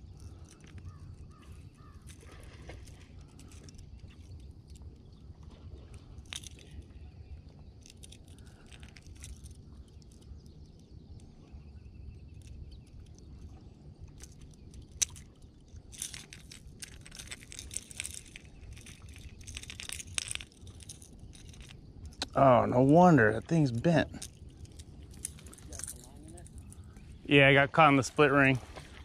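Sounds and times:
low steady rumble: 0.0 - 29.0
fishing lure hooks clinking: 23.6 - 27.0.

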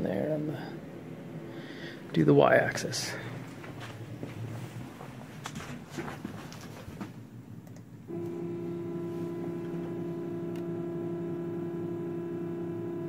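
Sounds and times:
stepper motors whining: 8.1 - 13.0.

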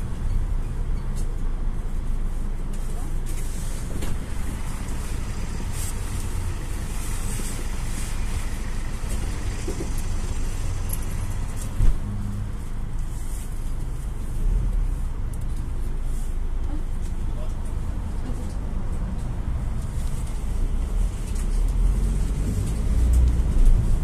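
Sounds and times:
minibus engine and road rumble: 0.0 - 24.0
thump: 11.8 - 12.1.

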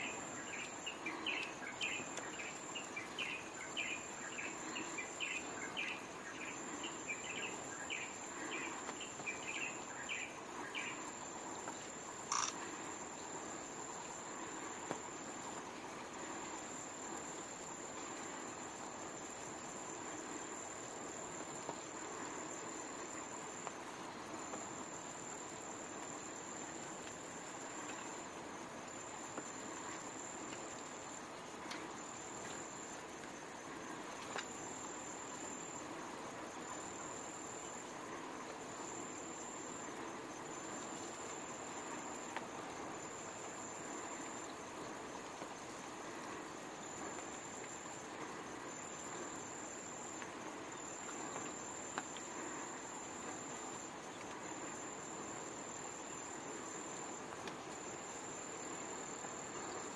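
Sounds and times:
outdoor hiss: 0.0 - 59.9
faint clicks: 12.2 - 12.7
insect trilling: 12.2 - 12.8.

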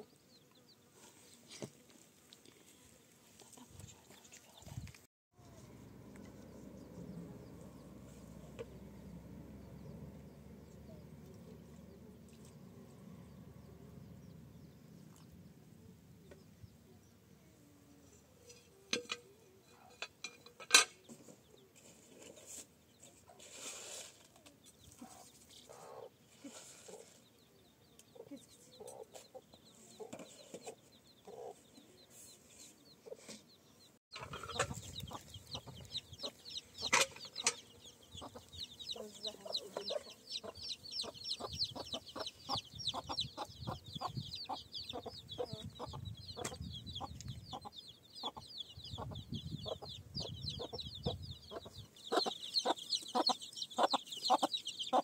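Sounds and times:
chickens clucking: 24.2 - 55.0.

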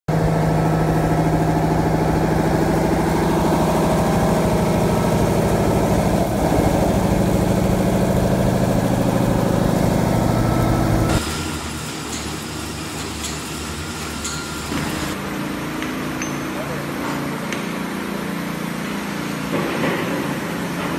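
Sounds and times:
milling machine humming: 0.1 - 15.6.

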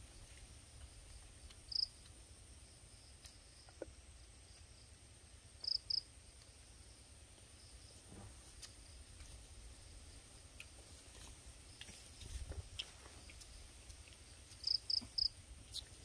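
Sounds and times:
insects droning: 0.0 - 16.0
loud insect chirps: 1.7 - 2.0, 5.6 - 6.1, 14.6 - 16.0.

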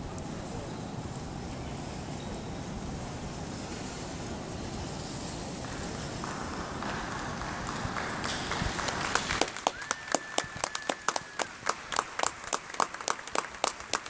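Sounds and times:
coach wheels on dirt: 0.0 - 14.0
horse hooves on dirt: 3.0 - 9.4
audience clapping: 5.6 - 14.0
long whistle: 9.6 - 11.6.

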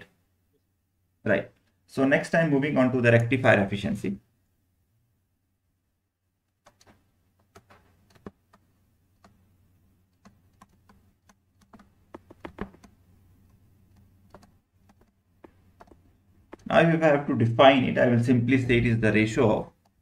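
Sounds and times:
stylus tapping on pen tablet: 10.6 - 16.7.

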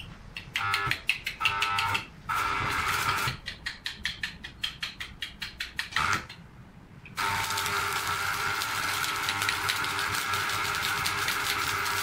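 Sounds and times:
electrode scratching and tapping: 0.5 - 6.2
welding arc crackling hiss: 2.3 - 3.4, 7.2 - 12.0.

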